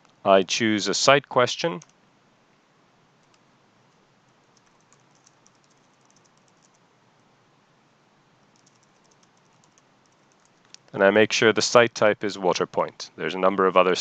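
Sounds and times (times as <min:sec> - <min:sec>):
quiet hiss: 0:00.0 - 0:14.0
soft keyboard typing: 0:01.7 - 0:02.0, 0:03.2 - 0:06.9, 0:08.4 - 0:11.0.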